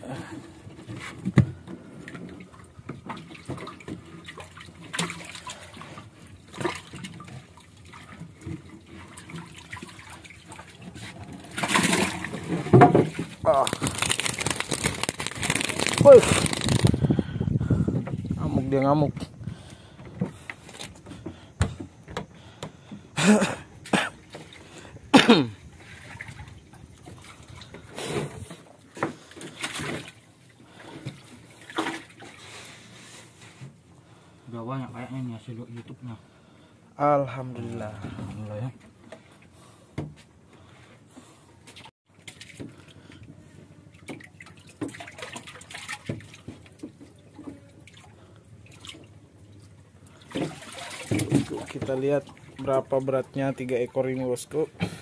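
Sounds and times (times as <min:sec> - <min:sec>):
fish thrashing and splashing in water: 0:03.0 - 0:17.1, 0:29.4 - 0:32.5, 0:43.9 - 0:52.7.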